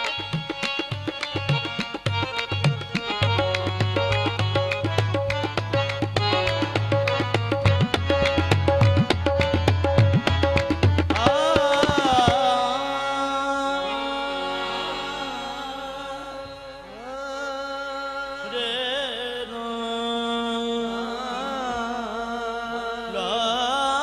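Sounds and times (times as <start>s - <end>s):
tabla drumming: 0.0s - 13.0s
harmonium sustained chords: 0.0s - 23.1s
person singing long wordless notes: 11.2s - 24.0s.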